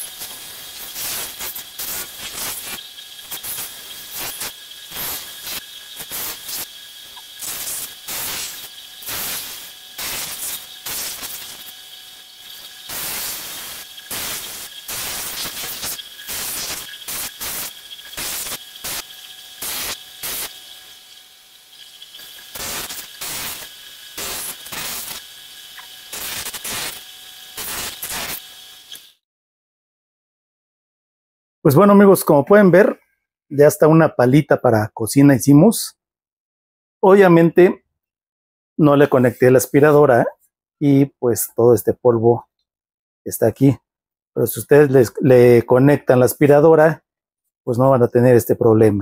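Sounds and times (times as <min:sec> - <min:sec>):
bench sander whine: 0:00.0 - 0:29.1
wood rasping on sander: 0:12.4 - 0:20.7.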